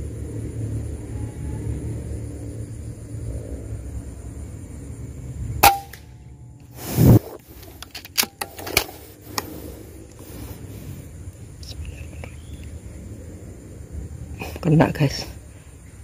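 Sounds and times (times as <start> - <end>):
steady low rumble: 0.0 - 16.0
air rifle shot: 5.6 - 6.1
short rush of noise: 6.7 - 7.8.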